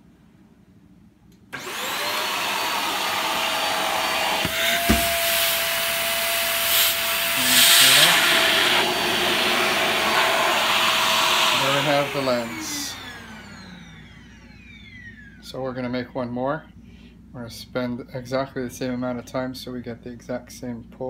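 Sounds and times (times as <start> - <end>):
vacuum cleaner motor whine: 1.5 - 15.6
sharp knock: 4.4 - 5.2.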